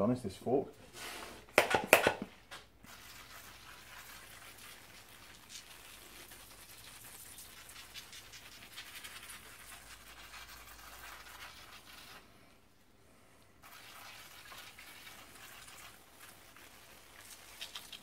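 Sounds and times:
liquid spattering: 0:13.6 - 0:18.0.

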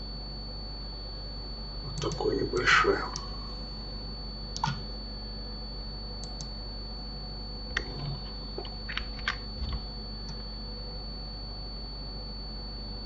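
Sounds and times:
faint electrical hum: 0:00.0 - 0:13.0
keyboard and mouse clicks: 0:01.9 - 0:02.2, 0:04.6 - 0:04.8, 0:06.2 - 0:06.5, 0:07.7 - 0:10.4.

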